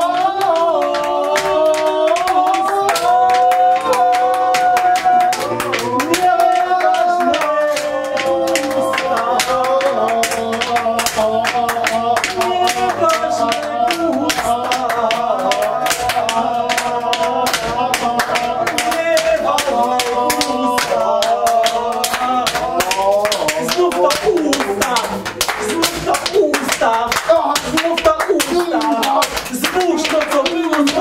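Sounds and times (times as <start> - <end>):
group singing: 0.0 - 31.0
sharp claps: 0.0 - 31.0.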